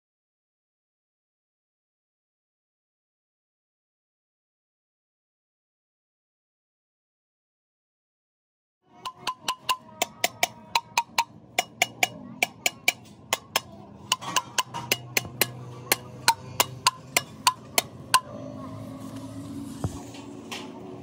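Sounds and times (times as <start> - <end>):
small hammer tapping metal: 9.0 - 18.3.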